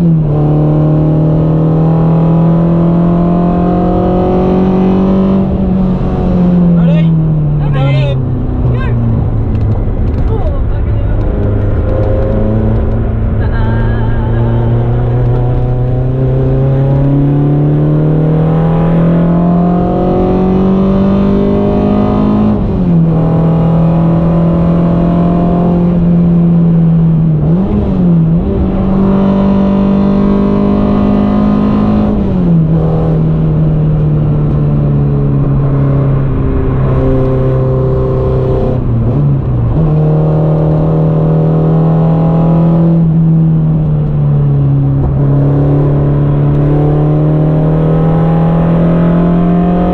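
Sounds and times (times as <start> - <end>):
car engine under hard driving: 0.0 - 49.9.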